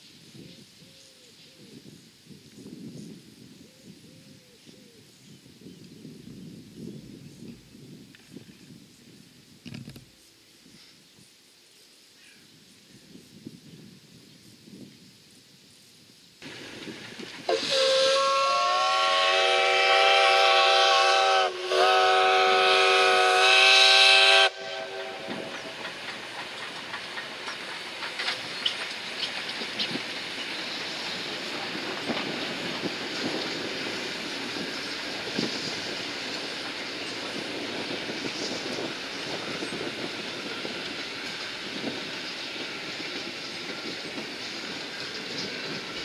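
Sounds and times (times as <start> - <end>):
train rolling past: 16.4 - 46.0
steam locomotive whistle: 17.5 - 25.8
wheels clicking on rails: 25.2 - 46.0.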